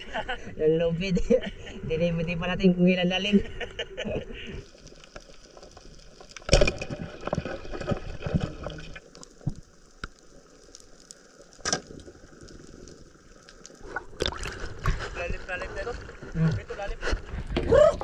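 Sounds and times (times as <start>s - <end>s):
fire crackling and popping: 4.3s - 18.0s.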